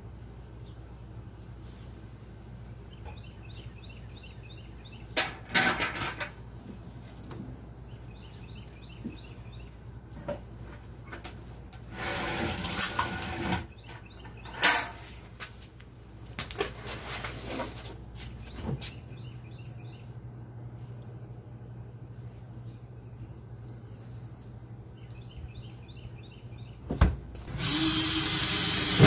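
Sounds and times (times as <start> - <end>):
steady low hum: 0.0 - 29.0
small birds chirping: 0.5 - 5.2, 6.7 - 11.7, 13.7 - 14.6, 18.3 - 26.9
metal can clanking and scraping: 5.2 - 6.4, 11.9 - 13.7
rustling and scraping: 10.2 - 19.0.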